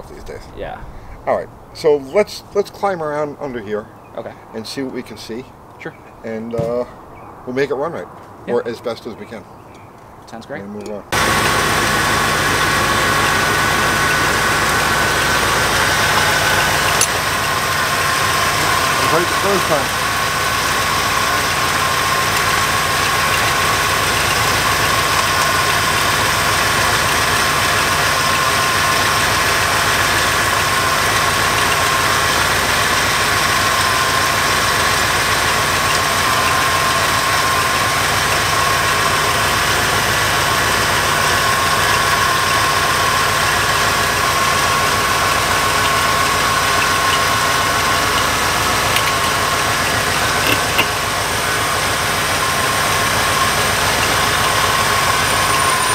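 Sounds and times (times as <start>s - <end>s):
car engine idling: 11.1s - 55.9s.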